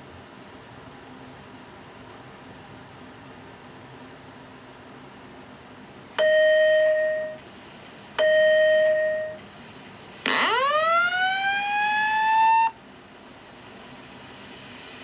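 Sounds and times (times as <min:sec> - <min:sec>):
fire alarm electronic tones: 0:06.2 - 0:07.4, 0:08.2 - 0:09.4, 0:10.3 - 0:12.8
rising whoop alarm tone: 0:10.3 - 0:12.8.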